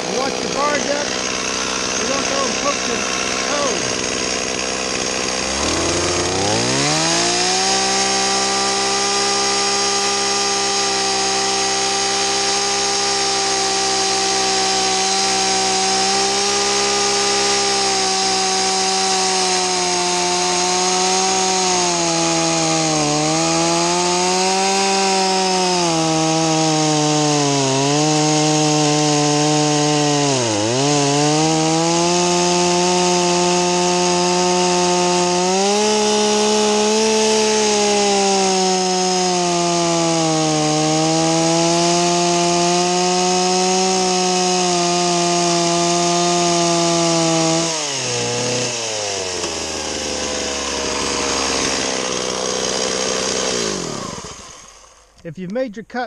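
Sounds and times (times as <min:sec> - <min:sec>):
chainsaw cutting into log: 0:00.0 - 0:55.4
chainsaw idling: 0:00.0 - 0:55.6.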